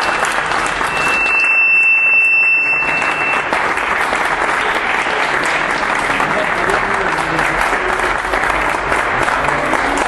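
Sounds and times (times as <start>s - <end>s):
high whistle: 0.0s - 3.6s
audience applauding: 0.0s - 10.0s.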